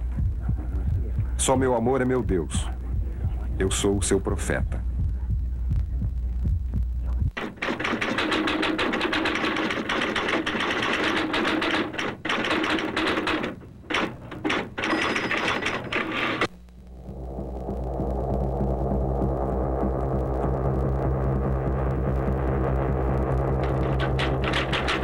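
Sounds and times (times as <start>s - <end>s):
low throbbing hum: 0.0s - 8.0s, 15.6s - 25.0s
typewriter key clatter: 7.4s - 16.5s, 23.6s - 25.0s.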